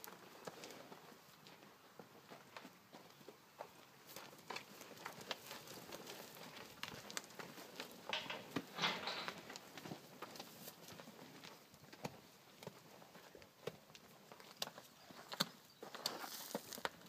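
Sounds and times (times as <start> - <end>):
hooves scuffing on dry dirt: 0.0 - 17.0.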